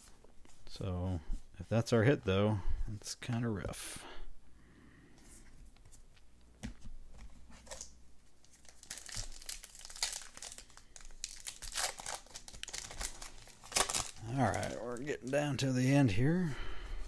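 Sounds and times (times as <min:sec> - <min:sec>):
wrapper crinkling and tearing: 0:07.6 - 0:15.6.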